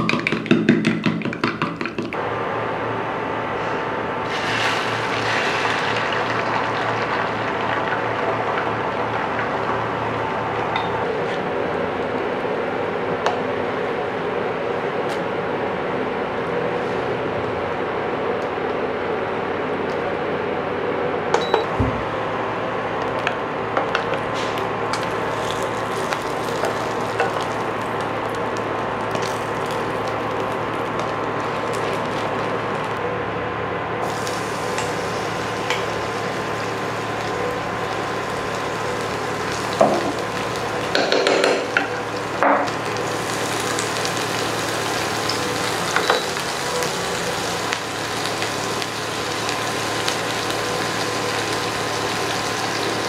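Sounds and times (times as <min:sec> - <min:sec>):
steady hum: 0:02.2 - 0:53.0
egg sizzling in a pan: 0:04.2 - 0:11.3, 0:24.9 - 0:33.0, 0:34.0 - 0:53.0.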